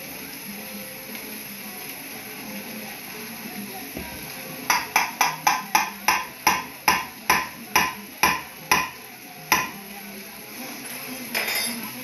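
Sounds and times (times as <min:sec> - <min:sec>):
cup tapping a metal bowl: 0:04.7 - 0:09.7.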